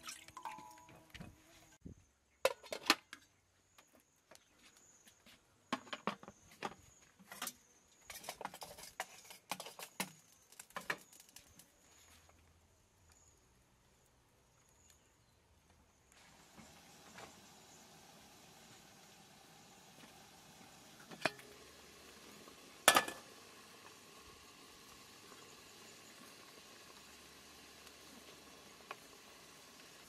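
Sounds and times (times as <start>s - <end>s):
metal pot and lid clattering: 7.3s - 10.1s, 21.1s - 21.5s, 22.9s - 23.3s.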